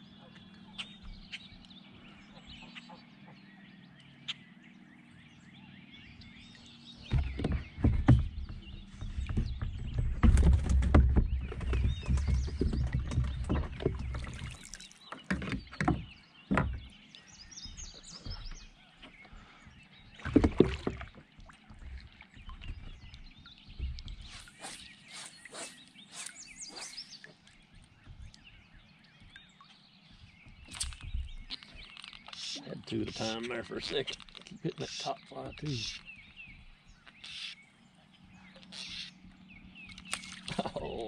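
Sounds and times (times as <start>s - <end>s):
water splashes: 6.4s - 18.8s, 19.4s - 37.5s
paddle knocking on plastic hull: 7.0s - 14.5s, 15.1s - 17.0s, 17.6s - 24.3s.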